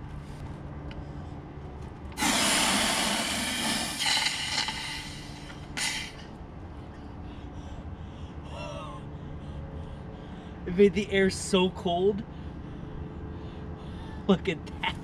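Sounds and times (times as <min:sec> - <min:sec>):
compressed gas hissing: 0:02.2 - 0:06.3.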